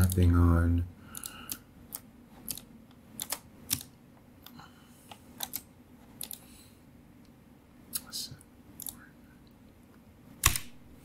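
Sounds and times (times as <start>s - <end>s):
mouse and keyboard clicks: 1.2s - 4.6s, 8.8s - 9.0s.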